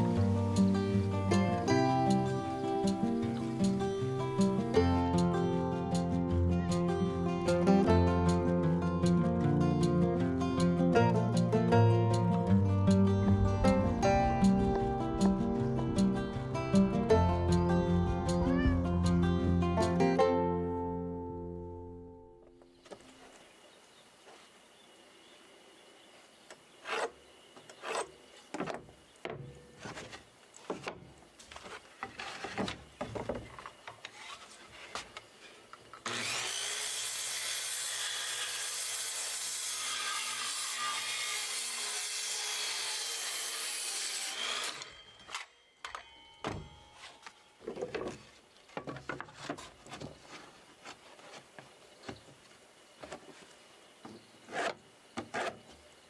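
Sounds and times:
electric power tool running: 0:36.0 - 0:39.5.

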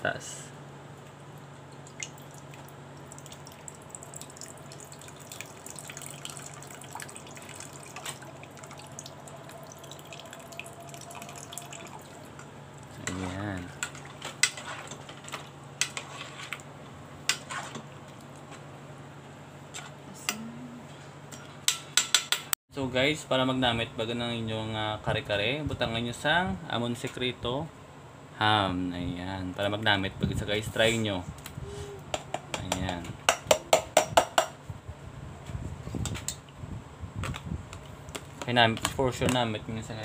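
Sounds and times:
low hum: 0:00.0 - 0:14.2
milk trickling into a pot: 0:01.8 - 0:12.9.

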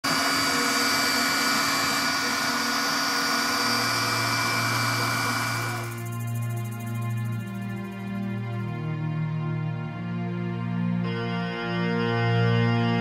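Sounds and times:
three d printer fans whirring: 0:00.0 - 0:08.6.

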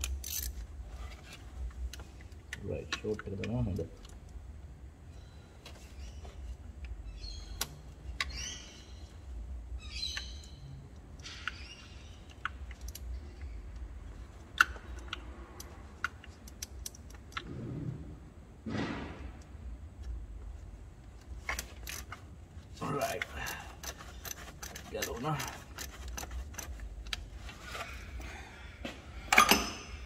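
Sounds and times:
low steady hum: 0:00.0 - 0:30.0
bird chirps: 0:07.0 - 0:09.2, 0:09.8 - 0:12.4.

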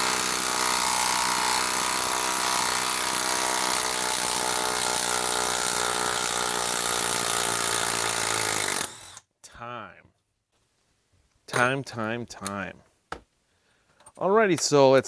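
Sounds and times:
impact driver hammering: 0:00.0 - 0:09.2.

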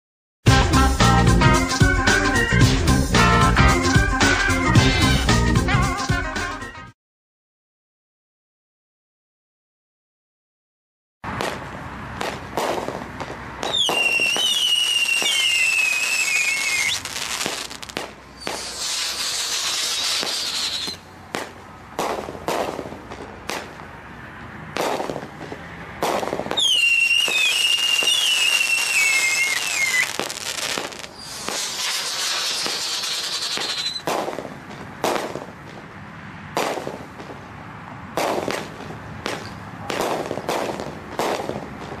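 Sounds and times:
fireworks shots and bursts: 0:11.2 - 0:24.0, 0:24.7 - 0:37.5, 0:38.1 - 0:42.0
falling firework whistle: 0:13.6 - 0:21.0, 0:26.5 - 0:34.1
firework hissing: 0:13.6 - 0:21.1, 0:26.0 - 0:34.4.

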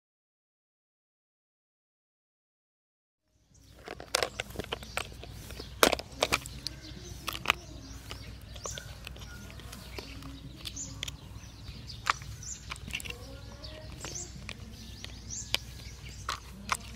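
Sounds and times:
birds chirping: 0:03.2 - 0:16.9
low background noise: 0:03.3 - 0:16.9
sharp clicks and knocks: 0:03.7 - 0:16.9.

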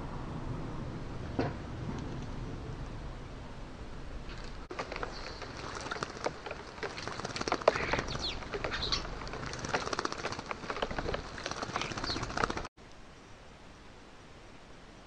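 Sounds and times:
bird wings fluttering: 0:04.2 - 0:12.7
water splashing: 0:04.2 - 0:12.7.

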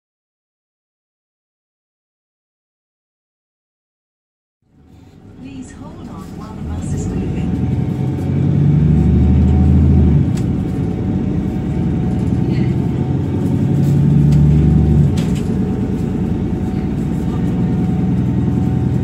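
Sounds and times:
bus diesel engine pulling under load: 0:04.7 - 0:19.0.

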